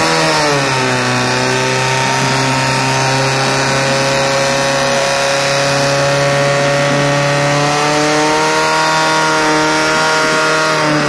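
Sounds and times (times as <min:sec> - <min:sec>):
pump engine running: 0:00.0 - 0:11.0.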